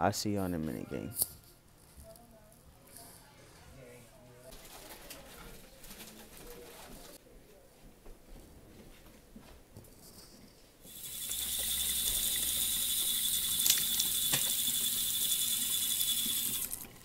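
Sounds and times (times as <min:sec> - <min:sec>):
high whistling tone: 0:10.9 - 0:16.7
faucet running into sink: 0:10.9 - 0:17.0.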